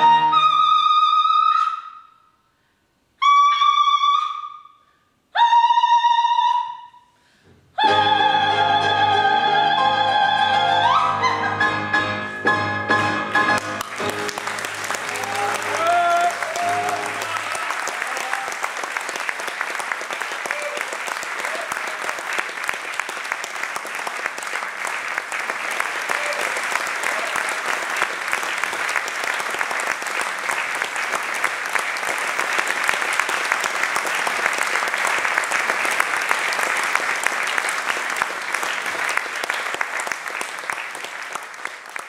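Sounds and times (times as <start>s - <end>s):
audience applauding: 13.2s - 42.0s.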